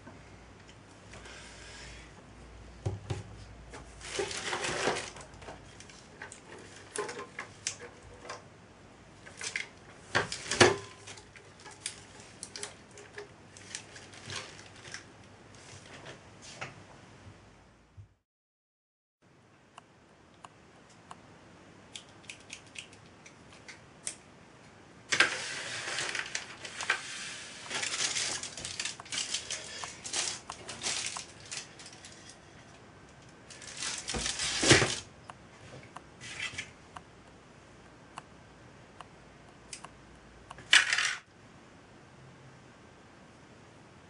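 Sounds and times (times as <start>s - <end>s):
kitchen foil crinkling: 4.0s - 7.0s, 10.3s - 15.0s, 25.1s - 32.4s, 33.4s - 35.1s.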